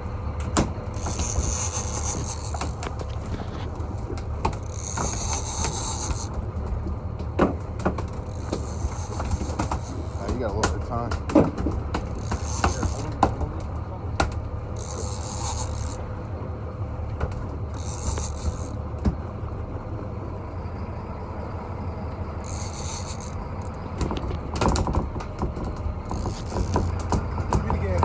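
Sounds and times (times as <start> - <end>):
steady low rumble: 0.0 - 28.0
fishing reel rasping: 0.9 - 6.4, 8.2 - 10.3, 12.1 - 13.3, 14.7 - 16.0, 17.7 - 18.8, 22.4 - 23.8, 26.0 - 27.0.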